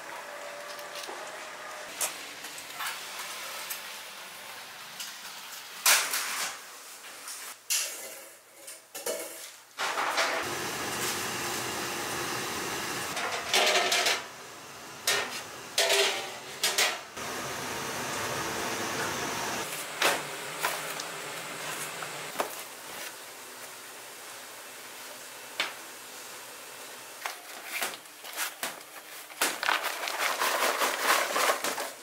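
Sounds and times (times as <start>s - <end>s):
kitchen hum: 0.0s - 32.0s
metal stockpots and lids clanking: 7.7s - 11.2s, 13.1s - 17.2s.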